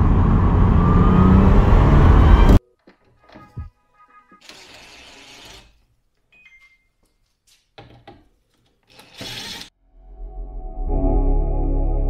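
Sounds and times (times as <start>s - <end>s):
plastic parts rubbing and scraping: 2.9s - 5.9s
cordless driver whirring: 8.9s - 9.7s.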